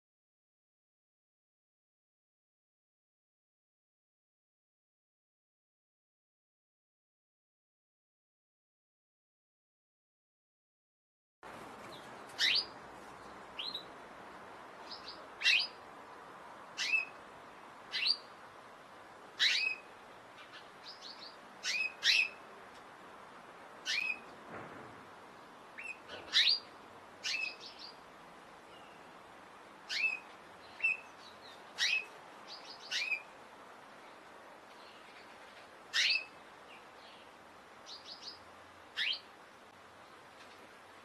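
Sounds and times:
faint steady hiss: 11.4s - 41.0s
canary chirping: 11.9s - 12.8s, 13.6s - 13.9s, 14.8s - 15.8s, 16.8s - 17.2s, 17.9s - 18.3s, 19.4s - 22.4s, 23.8s - 24.3s, 25.8s - 28.0s, 29.9s - 33.3s, 35.0s - 37.2s, 37.9s - 39.3s.

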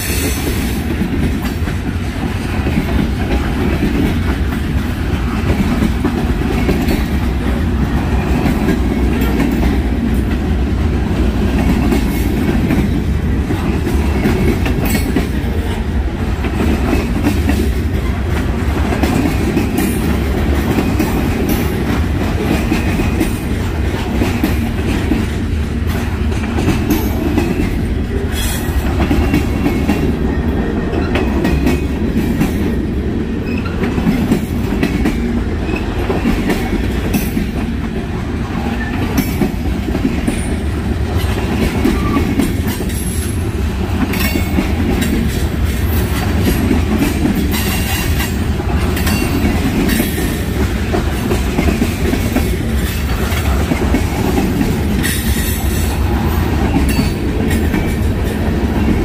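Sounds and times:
train cars rumbling on rails: 0.0s - 59.0s.

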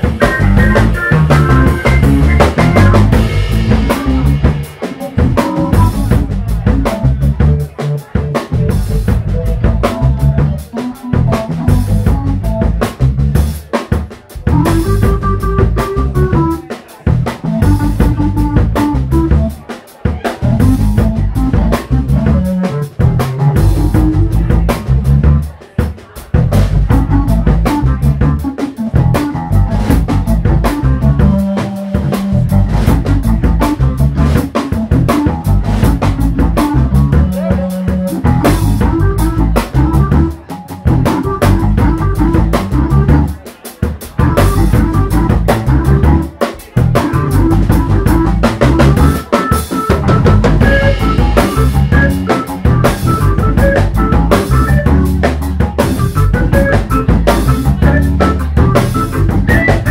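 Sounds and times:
organ: 0.0s - 13.1s, 14.4s - 16.6s, 26.7s - 43.4s, 44.2s - 46.3s, 46.9s - 59.9s
electric bass: 0.0s - 19.6s, 20.2s - 25.6s, 26.2s - 43.4s, 44.0s - 59.9s
electric guitar: 0.0s - 25.4s, 26.4s - 59.9s
drum kit groove: 0.0s - 59.9s.

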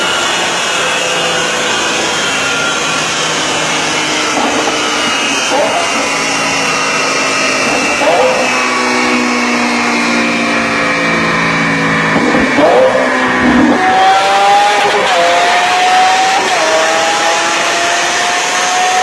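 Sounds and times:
car engine on dynamometer: 0.0s - 19.0s.

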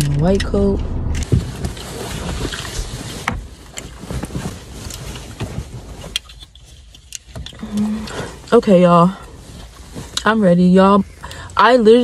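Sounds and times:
fabric rustling: 1.2s - 7.1s, 8.2s - 12.0s.

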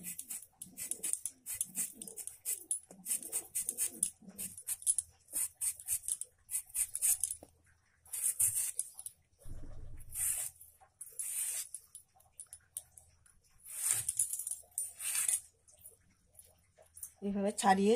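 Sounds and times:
potato peeling scrapes: 8.1s - 8.9s, 10.0s - 11.8s, 13.6s - 14.2s, 14.8s - 15.4s.

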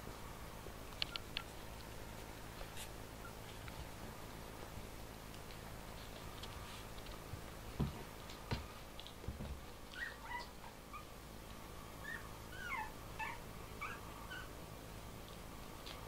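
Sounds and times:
puppies whimpering and squeaking: 3.1s - 3.6s, 9.9s - 11.1s, 12.0s - 14.6s.

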